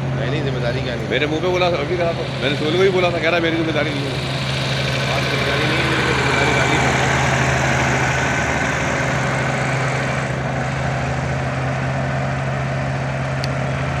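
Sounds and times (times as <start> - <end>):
road roller engine running: 0.0 - 14.0.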